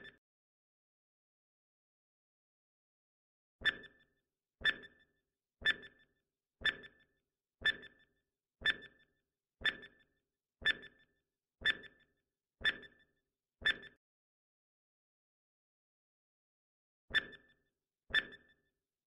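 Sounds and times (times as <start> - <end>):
timer ticking with ringing tone: 3.6 - 14.0, 17.1 - 18.6.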